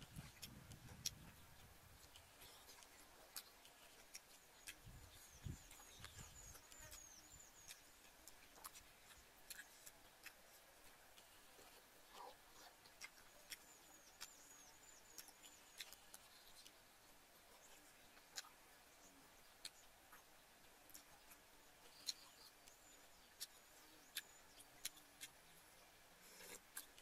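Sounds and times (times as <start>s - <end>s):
mouth clicks and smacks: 0.0s - 10.4s, 11.2s - 16.8s, 18.2s - 18.6s, 20.9s - 25.4s.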